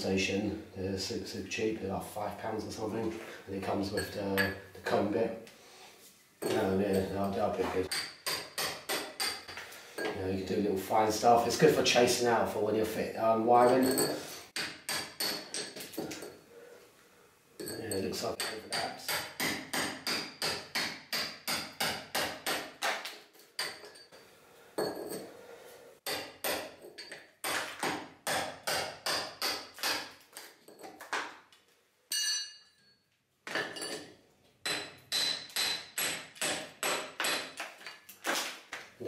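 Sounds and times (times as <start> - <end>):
hammer striking chisel: 7.9 - 9.6, 14.0 - 16.2, 18.4 - 24.0, 26.0 - 30.2, 34.6 - 37.8.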